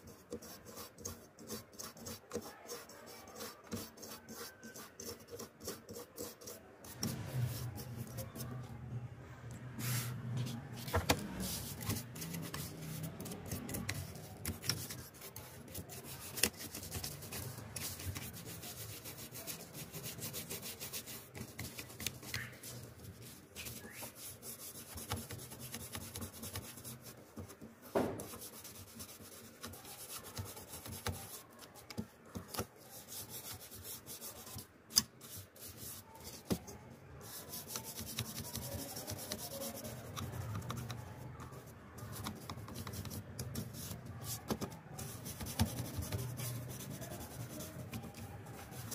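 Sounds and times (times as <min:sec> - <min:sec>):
toothbrush scrubbing plastic fan: 0:09.8 - 0:27.6, 0:28.2 - 0:36.6, 0:37.3 - 0:48.9.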